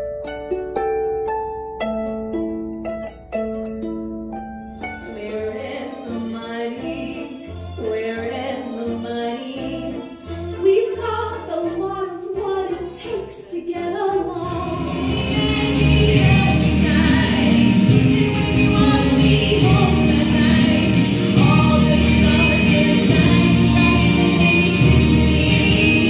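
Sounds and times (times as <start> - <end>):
woman singing: 5.1 - 10.0, 10.6 - 26.0
band backing: 14.0 - 26.0.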